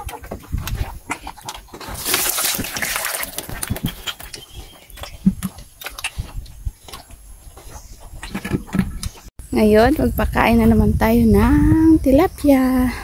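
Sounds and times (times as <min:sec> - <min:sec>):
pigs chomping and slurping: 0:00.0 - 0:09.3.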